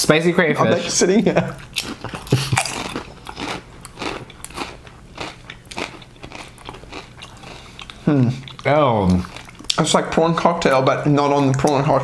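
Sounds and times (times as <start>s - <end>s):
potato chips crunching: 1.6s - 9.8s.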